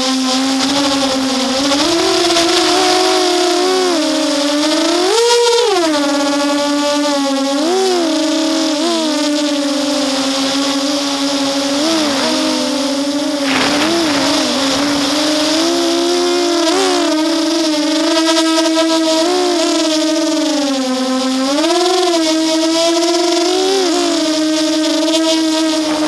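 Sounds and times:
quadcopter propellers whining: 0.0 - 26.0
wind noise rush: 0.4 - 5.2, 9.6 - 17.8.

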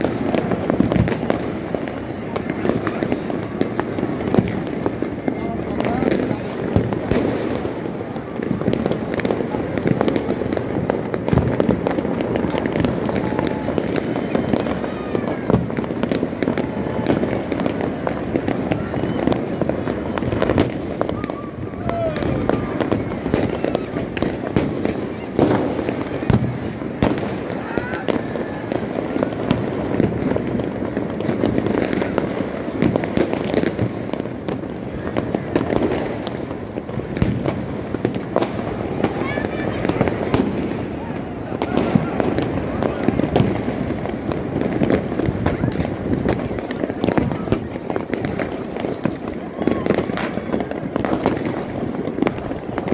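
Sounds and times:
firework whistle: 0.0 - 8.6, 10.0 - 33.8
fireworks crackling and banging: 0.0 - 52.9.

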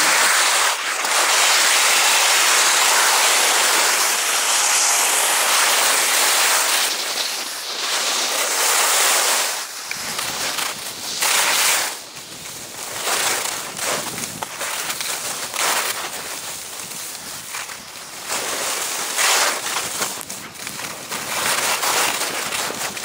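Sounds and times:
skis scraping over snow: 0.0 - 23.0
wind rumble on microphone: 9.8 - 23.0.

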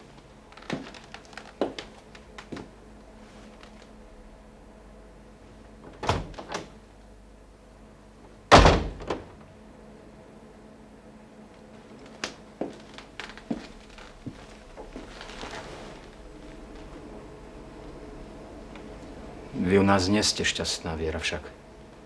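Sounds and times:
wooden door thudding shut: 5.8 - 6.8, 8.5 - 9.4.

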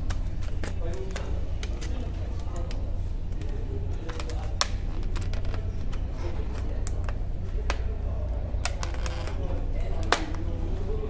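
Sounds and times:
plastic packaging crackling: 0.0 - 7.2
steady low hum: 0.0 - 11.0.

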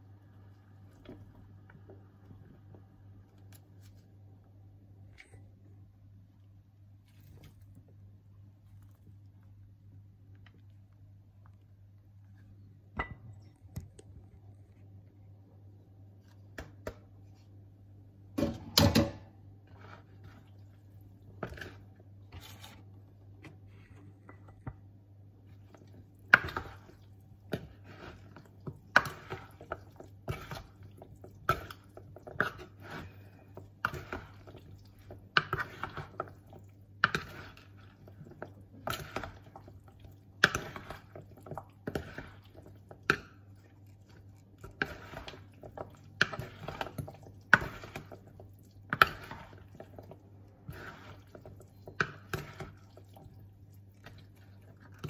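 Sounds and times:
low steady hum: 0.0 - 55.0
salad servers scraping a bowl: 19.6 - 20.7, 25.8 - 39.7, 40.4 - 55.0.

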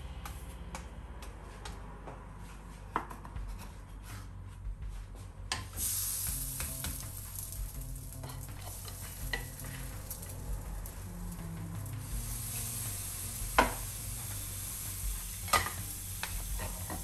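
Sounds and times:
faint background music: 0.0 - 17.0
hot pan sizzling: 5.8 - 17.0
wooden spatula scraping a pan: 15.5 - 17.0.

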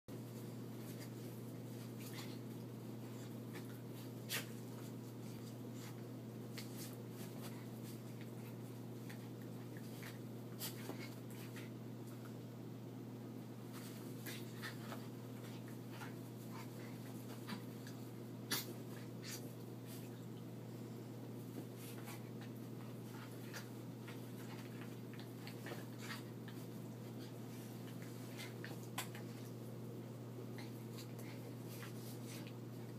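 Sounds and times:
steady low hum: 0.1 - 32.9
paws scuffling and scratching: 0.2 - 12.5, 13.6 - 20.2, 21.3 - 32.9.

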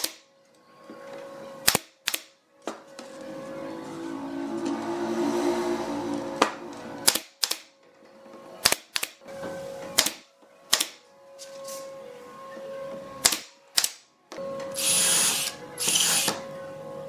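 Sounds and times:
nail gun shots: 0.0 - 0.2, 1.6 - 2.4, 7.0 - 7.7, 8.6 - 9.2, 10.0 - 11.0, 13.2 - 14.0
soft background music: 0.0 - 17.0.

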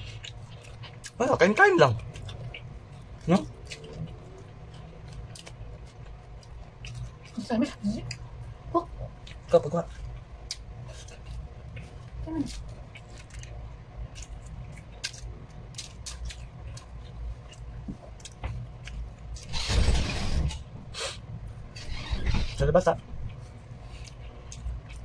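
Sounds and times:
chewing and mouth clicks: 0.0 - 19.4, 23.2 - 25.0
steady low hum: 0.0 - 25.0
loud burst of noise: 19.4 - 22.8.

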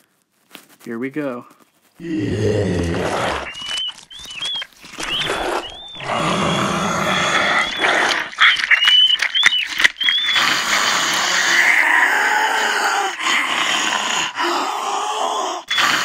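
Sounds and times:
creepy zombie growls and groans: 2.0 - 3.5, 5.3 - 8.3, 10.4 - 16.0
high rat squeaks: 3.4 - 6.3.

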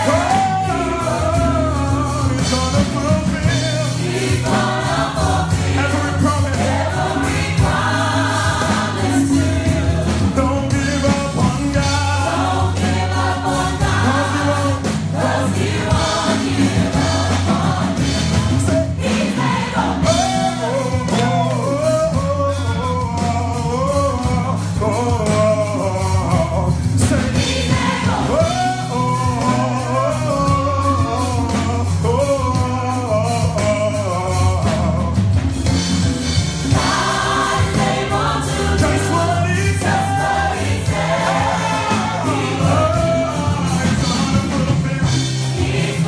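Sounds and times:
man singing lead: 0.0 - 4.4, 5.7 - 6.8, 10.2 - 12.6, 20.0 - 35.4, 38.8 - 40.6, 41.5 - 45.4
drum hits: 0.0 - 46.0
instrumental backing: 0.0 - 46.0
women singing: 4.0 - 10.4, 11.9 - 21.4, 27.4 - 30.0, 36.7 - 44.1.

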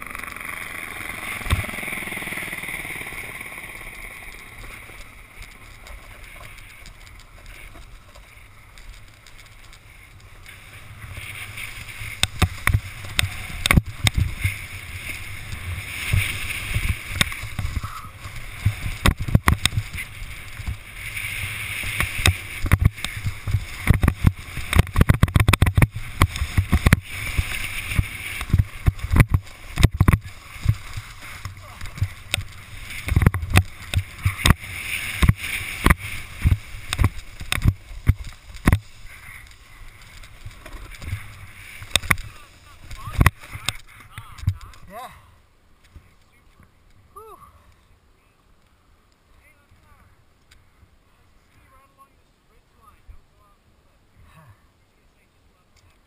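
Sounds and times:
snowboard scraping on snow: 0.9 - 43.8
snowboard knocks and thumps: 12.1 - 20.8, 21.8 - 39.0.

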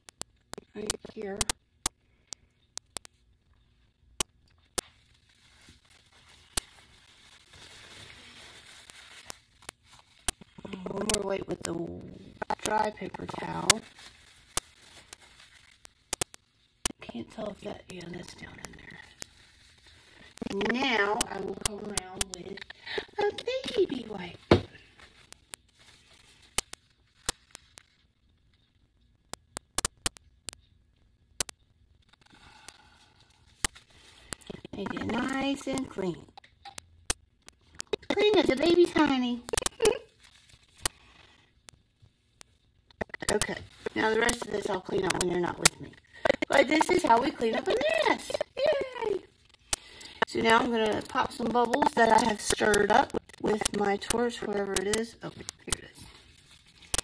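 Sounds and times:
paper towel rustling: 4.9 - 10.7, 12.2 - 17.6
sharp clicks: 29.3 - 30.6.

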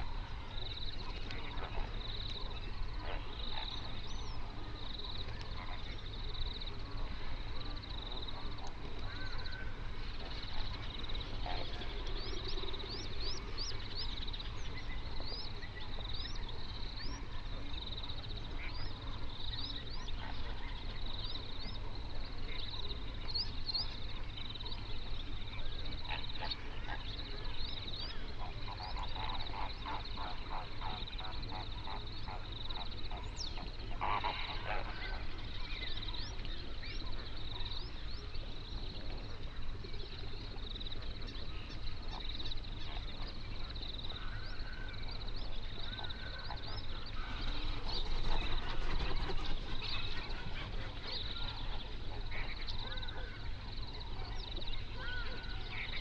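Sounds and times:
small birds chirping: 0.0 - 56.0
flamingos honking: 10.3 - 12.8, 28.4 - 35.8.

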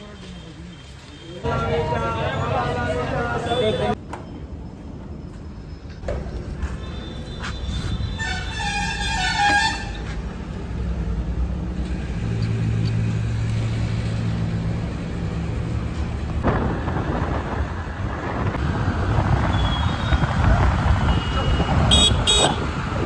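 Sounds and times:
wind and road noise: 0.0 - 23.0
horn toot: 21.1 - 22.7.

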